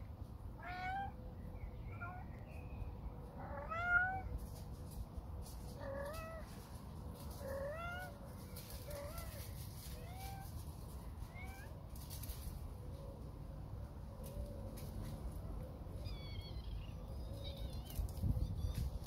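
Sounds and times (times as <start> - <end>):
cat meowing: 0.6 - 1.2, 3.4 - 4.3.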